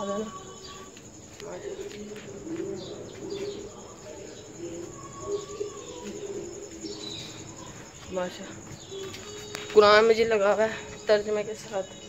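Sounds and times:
low repeated cooing: 0.0s - 9.7s
high insect trill: 0.0s - 12.0s
birds chirping and whistling: 2.6s - 12.0s.

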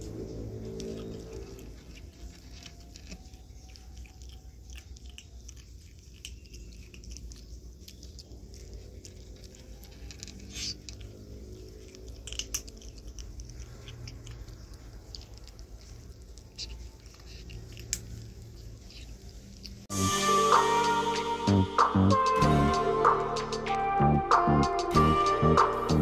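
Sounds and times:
kitten chewing dry kibble: 0.0s - 19.9s.

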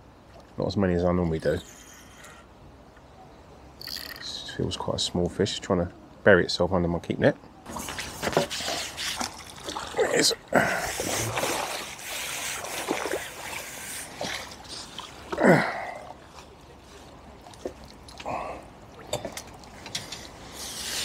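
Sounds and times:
fish splashing in net: 11.0s - 15.6s.

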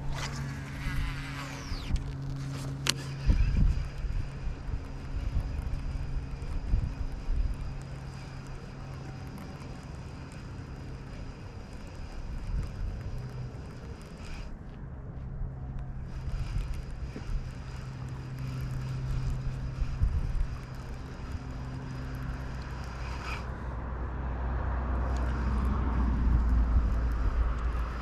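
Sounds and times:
fishing reel spool whirring: 0.0s - 14.6s, 15.8s - 28.0s
low engine drone: 0.0s - 28.0s
sharp reel click: 16.1s - 23.5s.

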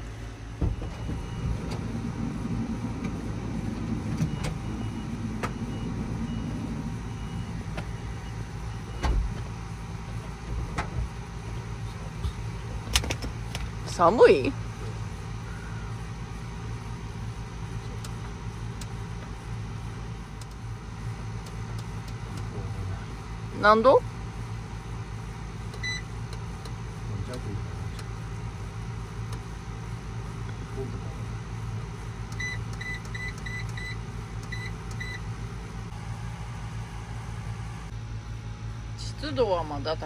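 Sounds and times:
low machine hum: 0.0s - 40.0s.

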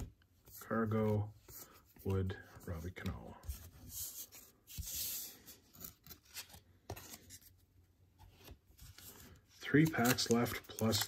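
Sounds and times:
cards sliding against cards: 3.0s - 7.5s, 8.3s - 11.0s.

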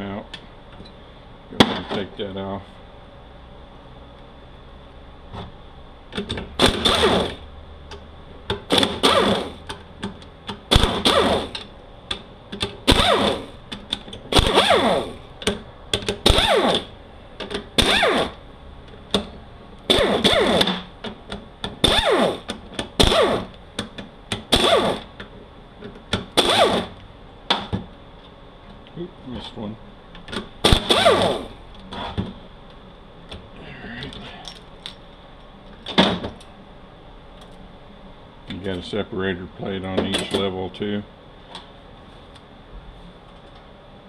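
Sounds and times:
air ratchet whining: 12.9s - 13.6s, 14.3s - 15.2s, 17.8s - 18.4s, 21.8s - 23.6s, 30.7s - 31.6s.

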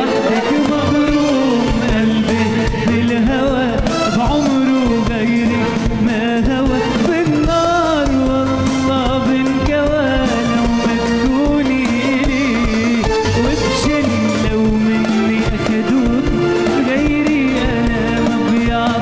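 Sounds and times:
live pop band playing: 0.0s - 19.0s
man singing: 0.0s - 19.0s.

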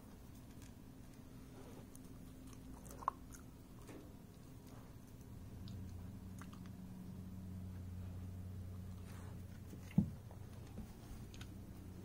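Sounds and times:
dog chewing: 0.0s - 7.2s.

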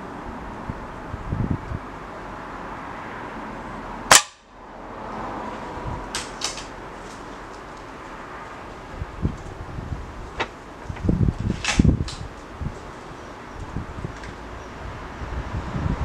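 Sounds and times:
air rifle shot: 4.1s - 4.4s.

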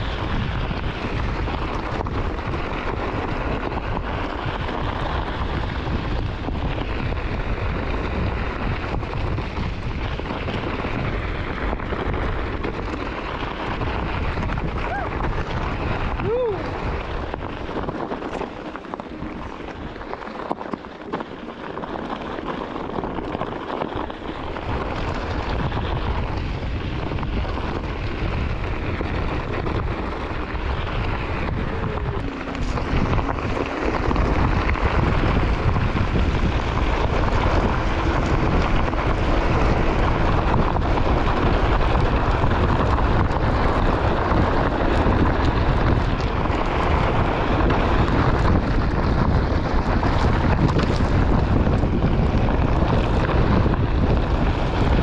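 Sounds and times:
wind buffeting microphone: 0.0s - 55.0s
tyre crunching on gravel: 28.8s - 42.7s.

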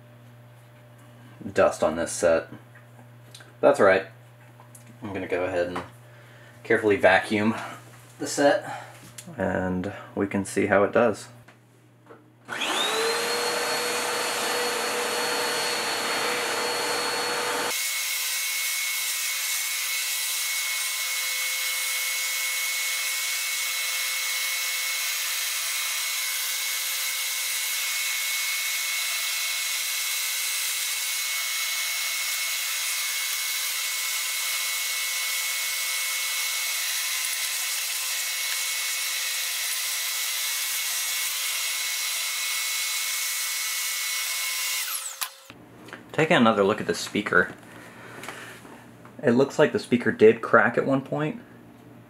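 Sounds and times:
vacuum cleaner hissing: 12.5s - 17.8s.

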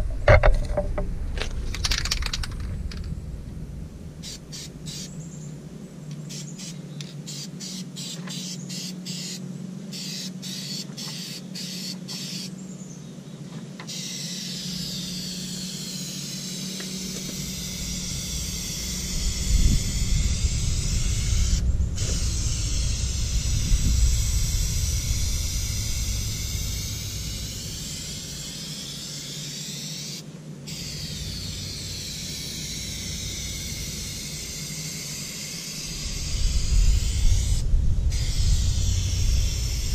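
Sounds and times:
low rumble: 0.0s - 6.0s, 17.0s - 28.6s, 35.8s - 39.9s
spray paint can hissing: 4.2s - 5.2s, 6.3s - 12.5s, 13.9s - 39.9s.

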